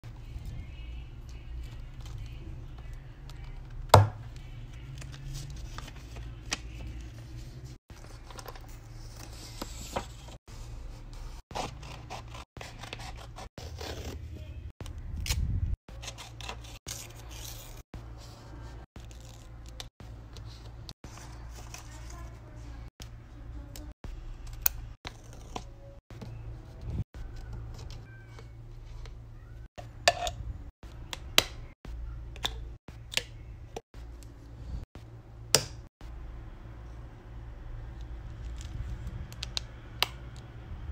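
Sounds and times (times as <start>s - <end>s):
paper handling and scraping: 4.4s - 14.6s, 15.9s - 22.7s.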